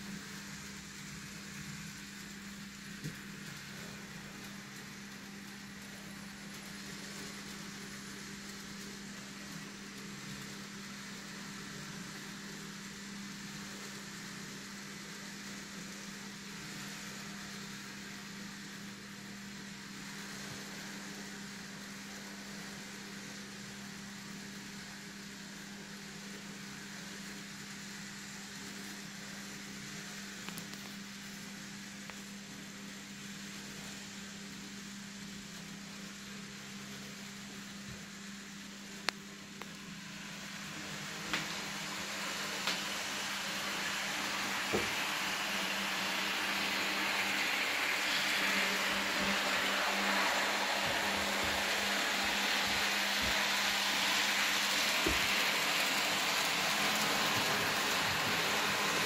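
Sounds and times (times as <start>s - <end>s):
even hiss: 35.9s - 59.0s
electric motor hum: 39.6s - 59.0s.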